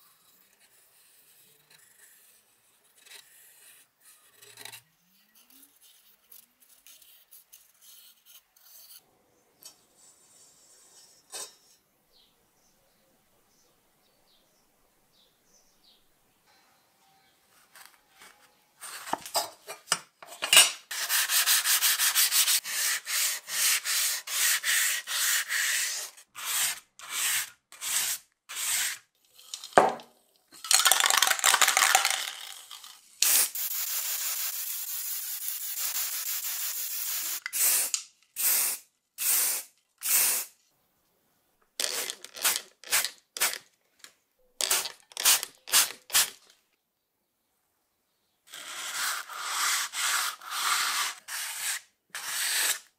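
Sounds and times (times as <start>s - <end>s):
sandpaper rubbing on metal: 20.9s - 29.0s, 48.6s - 52.9s
aerosol spray can hiss: 33.2s - 40.5s.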